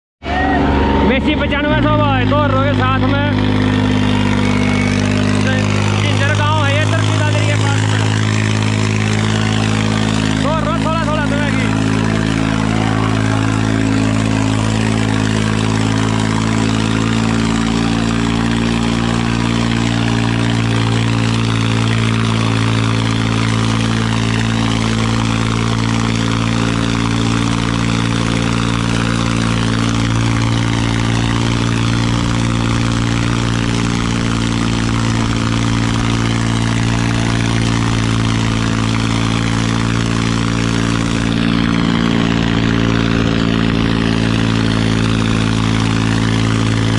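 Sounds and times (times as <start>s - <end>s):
tractor diesel engine under load: 0.2s - 46.9s.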